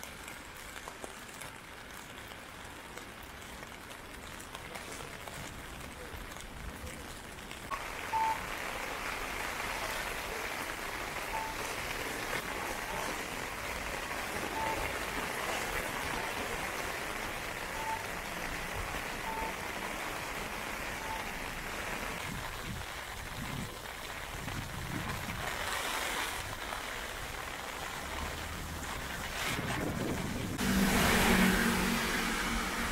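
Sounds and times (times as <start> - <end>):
heavy rain on pavement: 0.0 - 32.9
car tyres hissing on wet road: 7.7 - 23.3, 24.0 - 32.9
short electronic beep: 8.1 - 8.4, 11.3 - 11.7, 14.6 - 14.8, 17.7 - 18.1, 19.2 - 19.6, 21.0 - 21.3.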